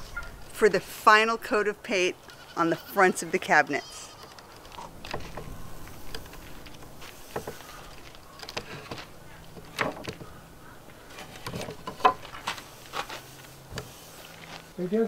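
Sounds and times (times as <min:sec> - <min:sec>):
wooden boards knocking: 0:07.3 - 0:07.7, 0:08.4 - 0:10.3, 0:11.1 - 0:12.6.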